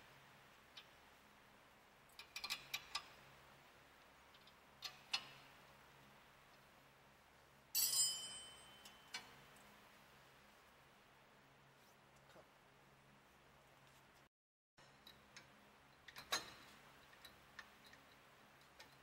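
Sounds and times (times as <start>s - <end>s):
metal wrench clinks: 7.8s - 9.2s
metal clatter with ring: 7.8s - 9.3s.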